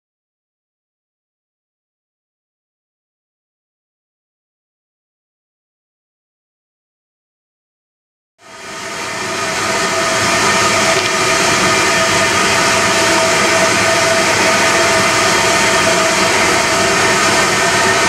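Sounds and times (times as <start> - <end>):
steam train approaching: 8.4 - 18.0.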